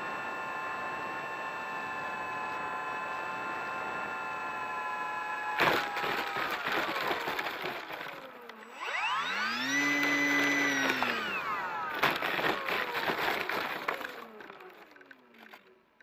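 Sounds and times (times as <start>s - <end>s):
electric motor and propeller whine: 0.0s - 15.8s
rustling: 9.8s - 16.0s.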